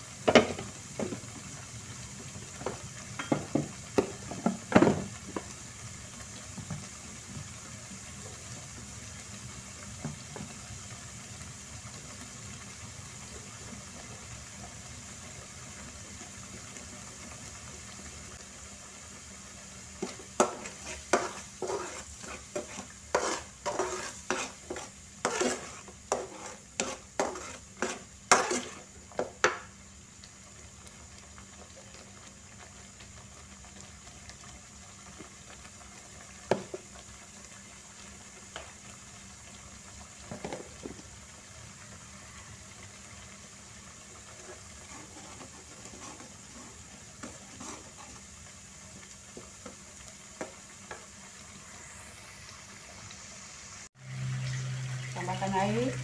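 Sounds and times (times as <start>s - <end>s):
sauce simmering and sizzling: 0.0s - 56.0s
metal spatula scraping pan: 20.0s - 28.9s, 44.3s - 48.2s.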